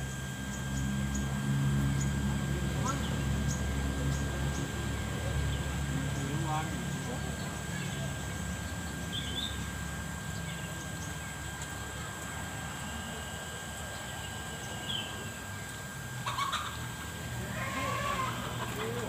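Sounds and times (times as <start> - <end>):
low hum: 0.0 - 18.8.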